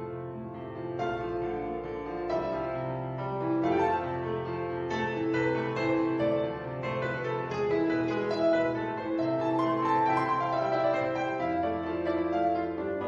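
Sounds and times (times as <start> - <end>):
keyboard chords: 9.5 - 12.5.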